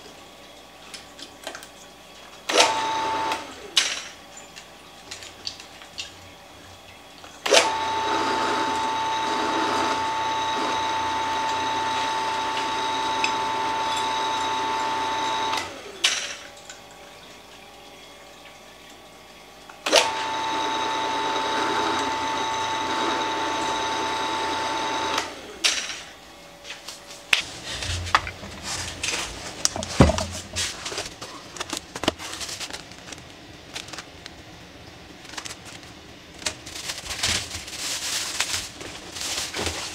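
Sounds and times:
drill press motor running: 7.5s - 15.8s, 19.9s - 25.6s
plastic packaging crackling: 26.9s - 39.9s.

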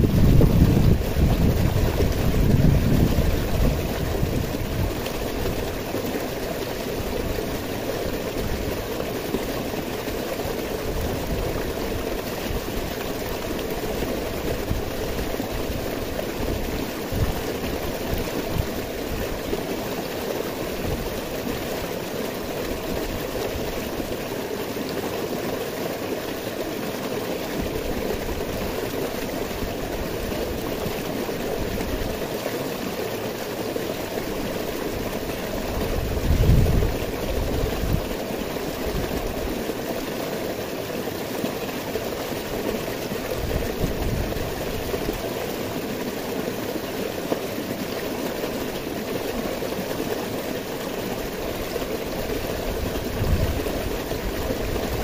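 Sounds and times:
stream rushing over rocks: 0.0s - 55.0s.

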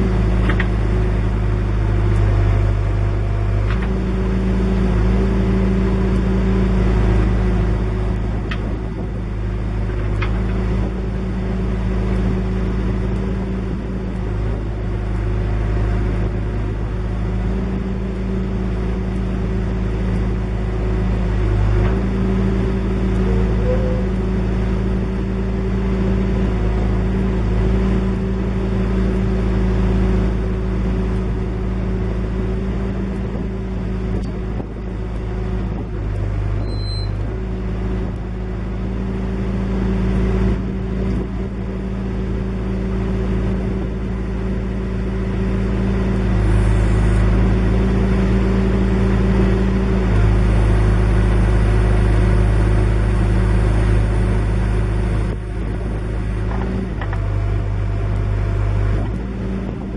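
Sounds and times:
diesel engine running: 0.0s - 59.9s.

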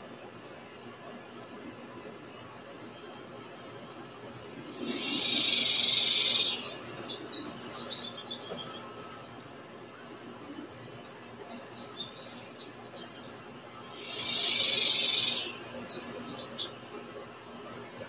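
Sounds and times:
small birds chirping: 4.1s - 18.0s
loud high-pitched hiss: 4.7s - 7.1s, 13.9s - 15.9s.

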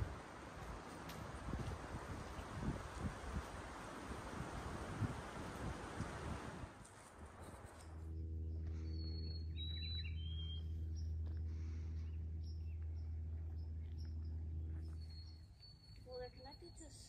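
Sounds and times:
birds chirping: 0.0s - 3.1s, 7.3s - 17.0s
steady low hum: 0.0s - 17.0s.

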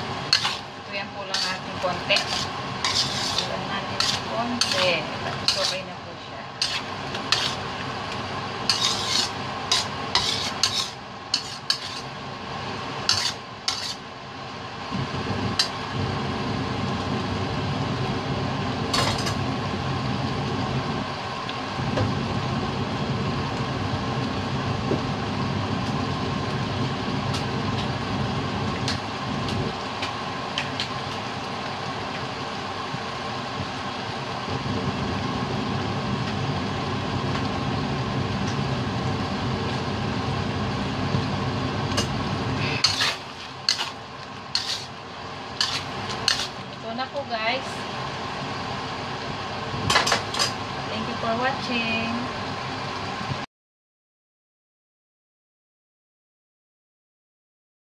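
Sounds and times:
steady hum of simmering sauce: 0.0s - 53.4s
spatula scraping a steel wok: 0.3s - 5.9s, 6.6s - 7.7s, 8.6s - 12.2s, 13.0s - 14.1s, 42.0s - 45.0s, 45.6s - 46.6s.

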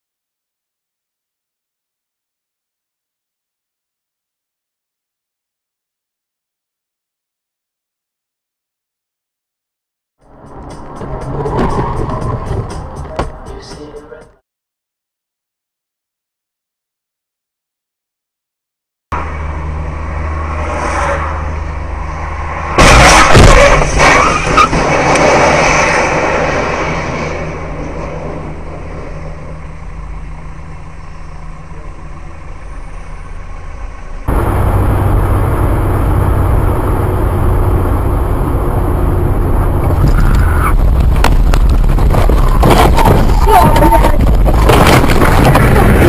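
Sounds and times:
road noise: 10.2s - 14.4s, 19.1s - 46.0s
vehicle collision: 20.3s - 29.3s, 34.3s - 46.0s.

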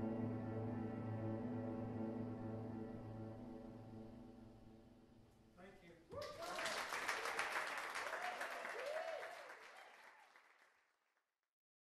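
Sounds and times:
audience cheering: 6.1s - 10.5s
audience applauding: 6.1s - 10.9s.

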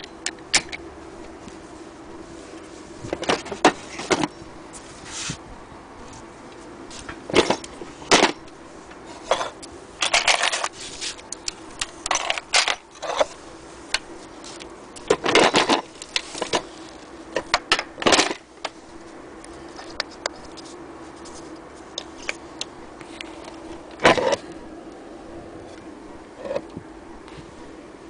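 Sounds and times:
faint steady hum: 0.0s - 28.0s
metal bobbins and tools rattling: 7.0s - 8.5s, 9.2s - 13.4s, 15.0s - 18.4s.

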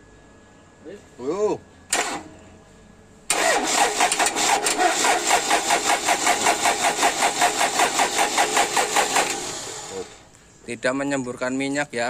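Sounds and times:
diesel engine cranking: 1.9s - 2.4s, 3.3s - 10.3s.

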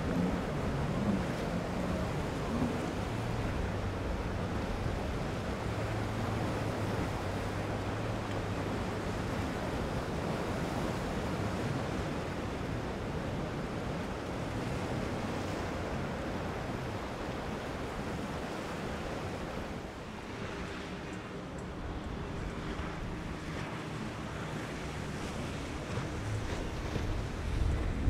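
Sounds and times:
faint boat engine hum: 0.0s - 28.0s
wind on microphone: 0.0s - 28.0s.

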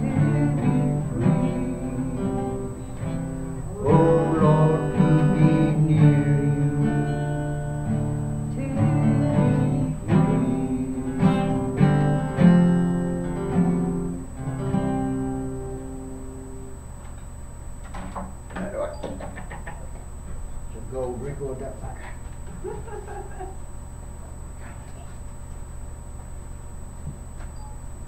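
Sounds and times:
acoustic guitar playing: 0.0s - 16.8s.

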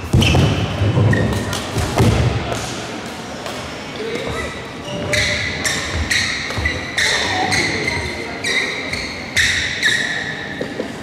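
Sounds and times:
shoes squeaking on court: 4.0s - 11.0s.

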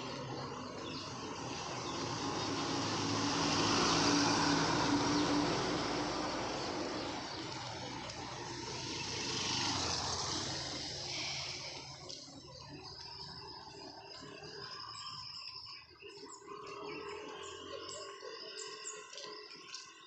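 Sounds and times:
quieter vehicle passing: 0.0s - 15.3s
vehicle passing on road: 0.0s - 15.4s.

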